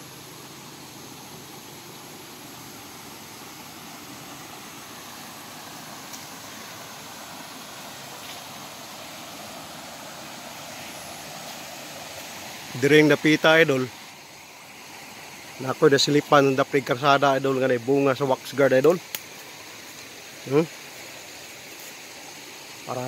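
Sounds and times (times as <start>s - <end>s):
creek flowing over stones: 0.0s - 23.0s.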